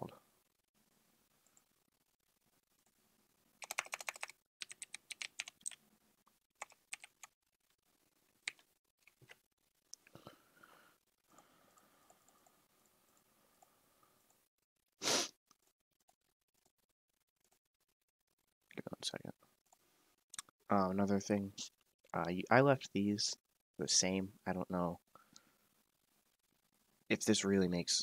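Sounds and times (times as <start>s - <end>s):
typing on computer keyboard: 3.6s - 5.8s, 6.6s - 7.4s, 8.4s - 9.2s.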